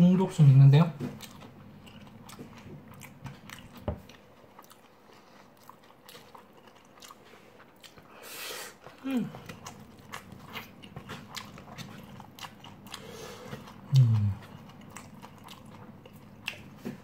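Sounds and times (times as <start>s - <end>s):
chewing with mouth clicks: 1.0s - 17.0s.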